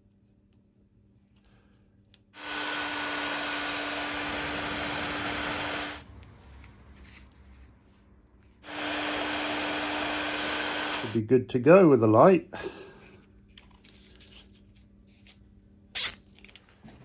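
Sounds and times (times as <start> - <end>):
heat gun blowing with a hum: 2.4 - 6.1, 8.6 - 11.2.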